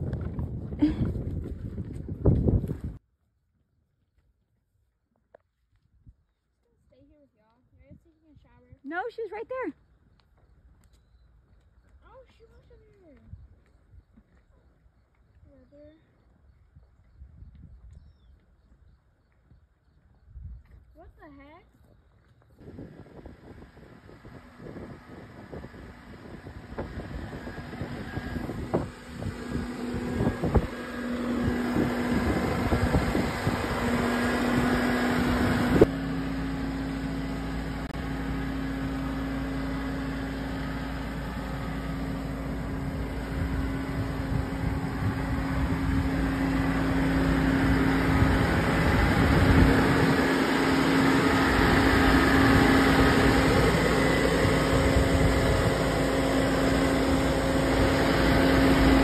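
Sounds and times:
engine running steadily: 0.0s - 3.0s, 20.8s - 59.0s.

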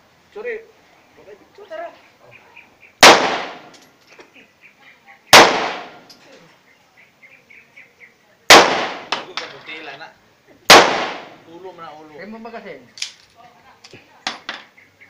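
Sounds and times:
pistol shots: 3.0s - 3.7s, 5.3s - 6.1s, 8.5s - 9.3s, 10.7s - 11.4s.

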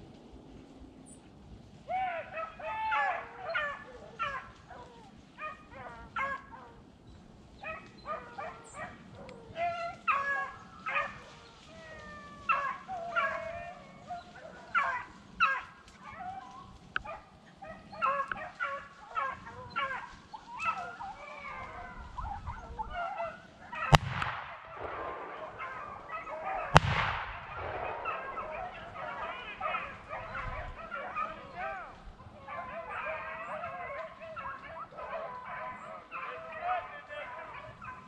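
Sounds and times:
dogs baying in chorus: 1.9s - 6.9s, 7.5s - 38.0s
shotgun shots with echo: 23.9s - 29.5s.

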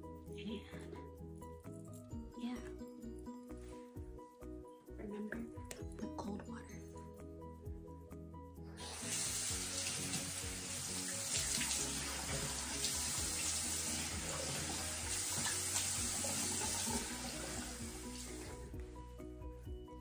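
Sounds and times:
water splashing on face: 8.8s - 18.4s
tap running into basin: 8.8s - 18.6s.

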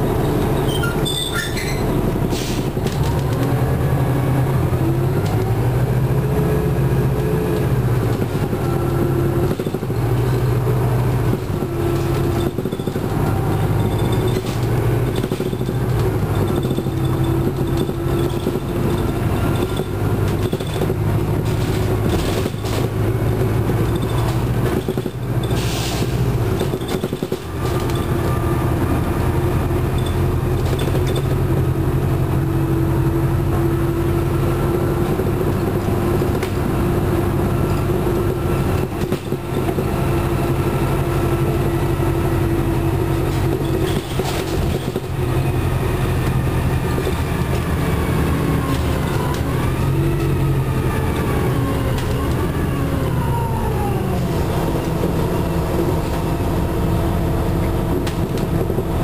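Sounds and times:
bus diesel engine running: 0.0s - 59.0s
bus body knocks and rattles: 7.1s - 32.4s, 34.7s - 40.6s, 41.3s - 50.4s, 54.3s - 59.0s.

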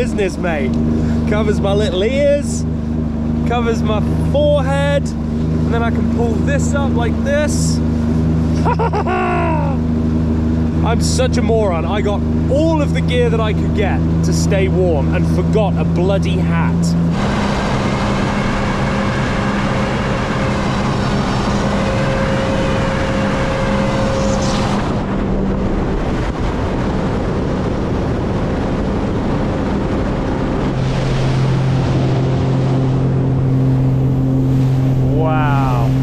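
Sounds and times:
watercraft engine drone: 0.0s - 36.0s
wind: 0.0s - 36.0s
water rushing: 30.6s - 36.0s.

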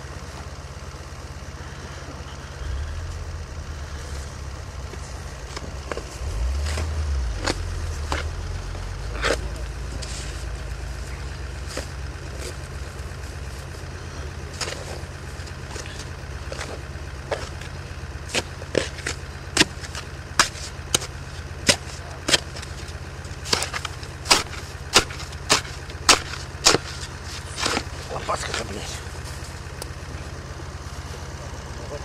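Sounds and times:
car engine idling: 0.0s - 32.0s
hand shovel scraping snow: 9.2s - 10.5s.

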